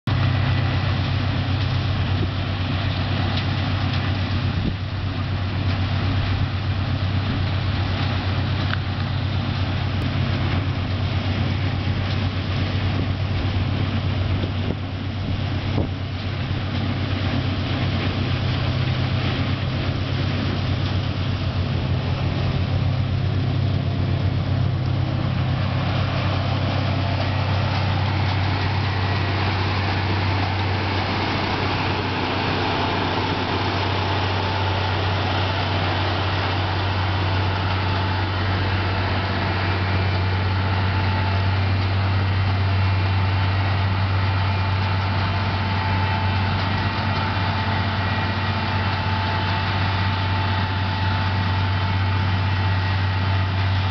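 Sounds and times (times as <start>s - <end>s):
harvester engine drone: 0.0s - 53.9s
machine rushing noise: 21.8s - 42.4s.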